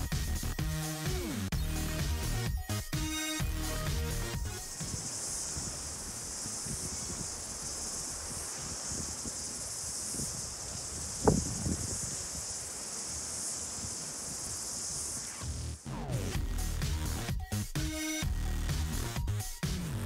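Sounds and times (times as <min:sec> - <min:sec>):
high-pitched insect chorus: 0:01.6 - 0:15.9.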